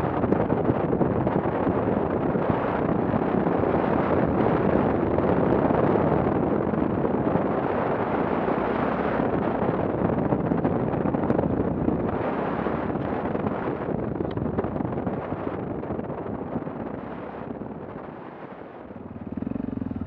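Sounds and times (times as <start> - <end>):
wind rushing on microphone: 0.0 - 20.0
motorcycle engine running: 18.8 - 20.0.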